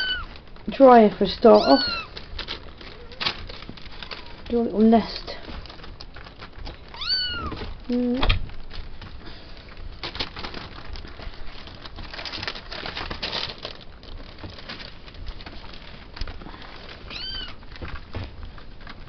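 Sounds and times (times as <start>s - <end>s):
kittens scratching: 0.0s - 19.0s
paper rustling and crinkling: 0.0s - 19.0s
kitten mewing: 1.6s - 2.1s, 6.9s - 8.3s.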